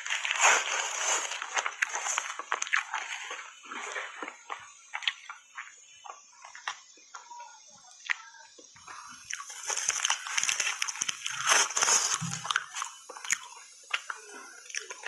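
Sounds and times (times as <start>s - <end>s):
plastic bag crinkling: 0.0s - 5.3s, 9.4s - 14.2s
ice crunching between teeth: 0.0s - 6.9s, 8.0s - 15.0s.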